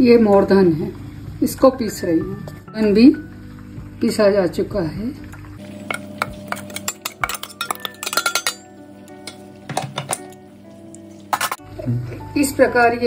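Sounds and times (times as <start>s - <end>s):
spoon scraping and tapping metal jar: 5.8s - 10.4s, 11.3s - 11.6s.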